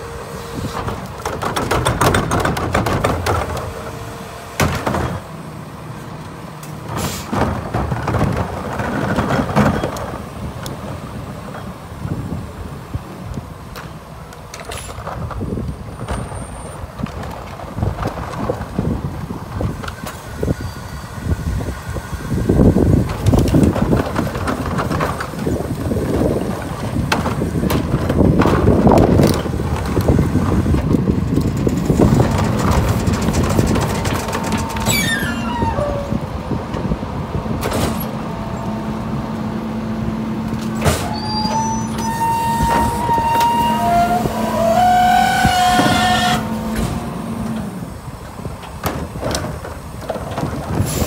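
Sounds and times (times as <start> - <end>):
garbage truck engine running: 0.0 - 51.0
wind on microphone: 15.0 - 37.7
high squeal: 34.5 - 36.2, 40.9 - 46.8.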